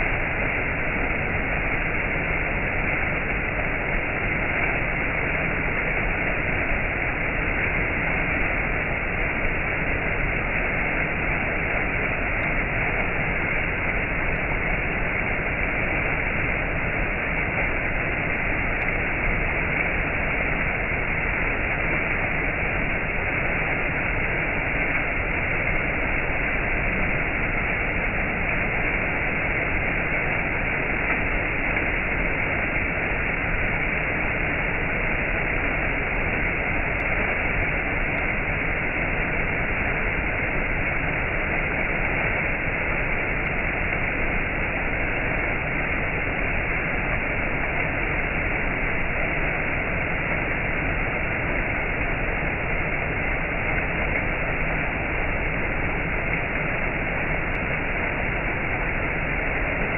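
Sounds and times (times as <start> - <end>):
water rushing over rocks: 0.0 - 59.9.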